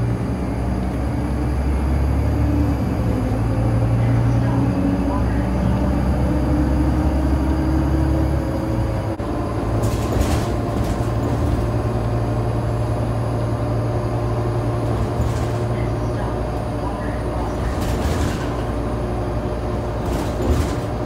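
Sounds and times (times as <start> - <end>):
bus engine hum: 0.0 - 21.0.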